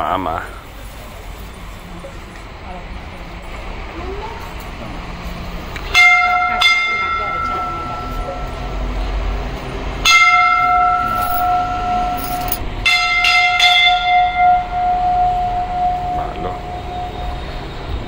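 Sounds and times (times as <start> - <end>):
temple bell ringing: 5.9 - 18.0.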